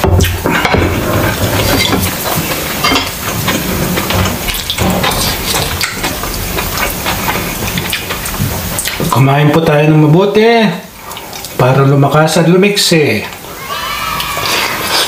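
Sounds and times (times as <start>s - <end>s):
chewing: 0.2s - 9.2s, 11.0s - 11.6s, 13.2s - 15.0s
cutlery scraping on ceramic plates: 0.4s - 6.9s.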